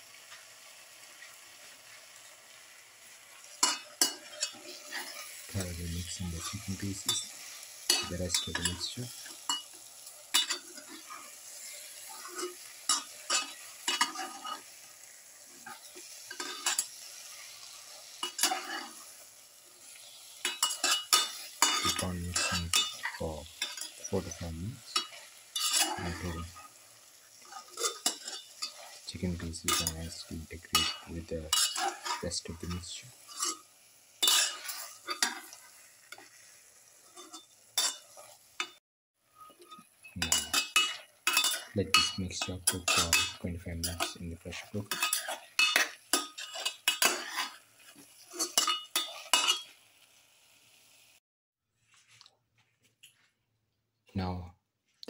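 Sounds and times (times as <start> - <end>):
food sizzling: 0.0 - 51.2
spatula scraping steel pot: 3.4 - 5.7, 10.3 - 14.8, 18.2 - 19.0, 24.9 - 26.7, 27.4 - 29.1, 30.7 - 36.4, 39.4 - 49.7
ladle scraping steel pot: 30.8 - 32.2.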